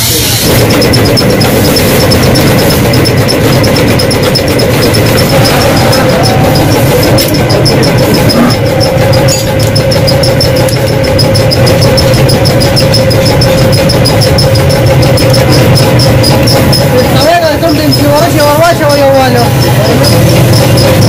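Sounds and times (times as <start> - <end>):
fast even ticking: 0.0 - 21.0
machine motor humming: 0.0 - 21.0.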